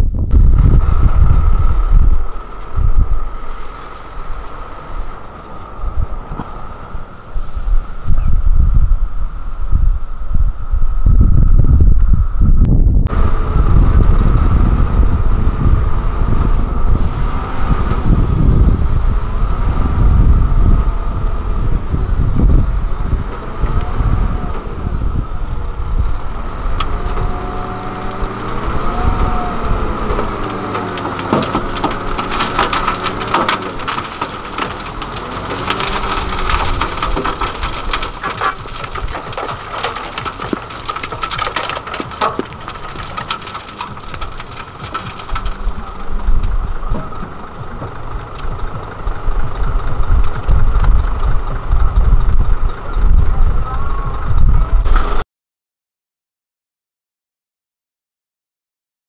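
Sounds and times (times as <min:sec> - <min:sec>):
dump truck engine rumbling: 0:00.0 - 0:55.2
soil and rocks clattering out: 0:00.4 - 0:08.1, 0:26.2 - 0:53.2.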